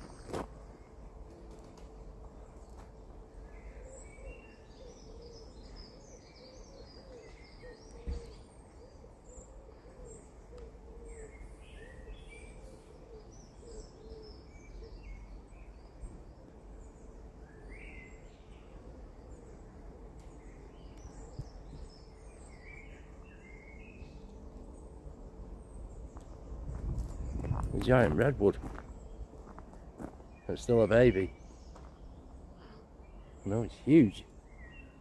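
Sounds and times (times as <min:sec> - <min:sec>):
small birds chirping and singing: 0:00.0 - 0:35.0
low hooting bird call: 0:03.3 - 0:26.5.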